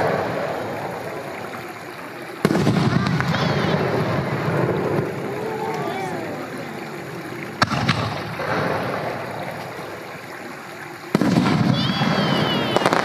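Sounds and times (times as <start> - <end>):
firework crackling: 0.0 - 13.0
firework shells bursting: 2.4 - 5.2, 7.5 - 9.8, 11.1 - 13.0
high wavering whistle: 11.6 - 13.0.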